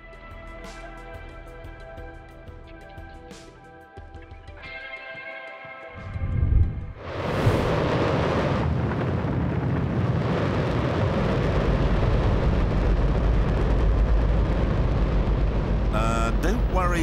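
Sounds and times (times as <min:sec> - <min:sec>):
rocket engine firing: 0:07.6 - 0:17.0.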